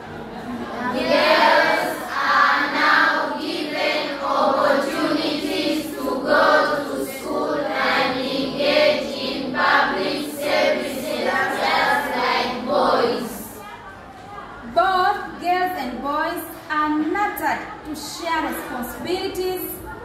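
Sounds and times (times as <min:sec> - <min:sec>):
children reading aloud in unison: 0:00.4 - 0:13.9
teacher speaking: 0:00.6 - 0:20.0.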